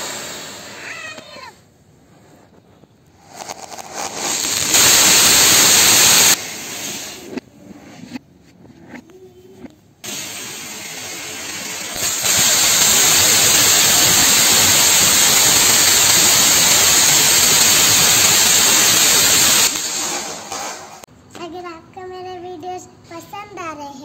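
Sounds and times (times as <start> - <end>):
fountain firework spraying sparks: 0.0 - 1.6, 3.1 - 7.4, 10.0 - 21.1.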